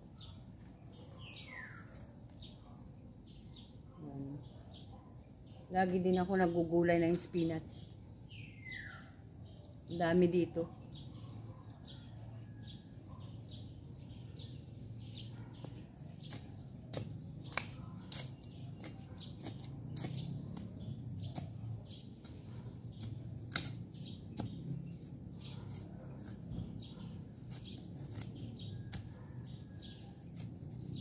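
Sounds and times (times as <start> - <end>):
faint bird chirps: 0.0 - 5.8, 7.8 - 10.1.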